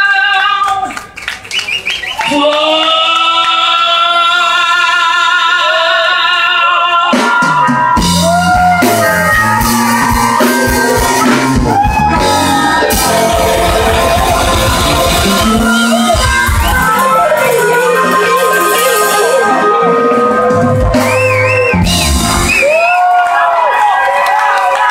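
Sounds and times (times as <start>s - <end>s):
person singing: 2.3s - 21.5s
drums: 5.4s - 23.9s
live blues band playing: 7.1s - 22.7s.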